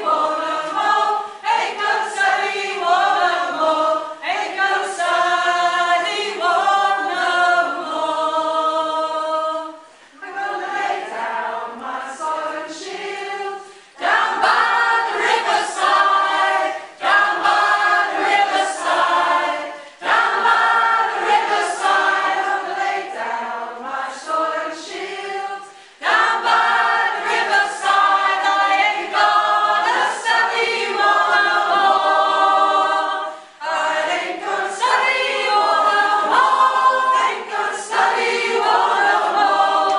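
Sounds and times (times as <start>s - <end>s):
choir singing: 0.0s - 39.9s.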